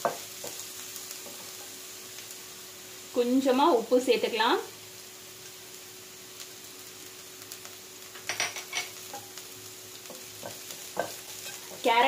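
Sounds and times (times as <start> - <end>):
vegetables frying faintly: 0.0 - 12.0
wooden spatula scraping pan: 10.4 - 11.9.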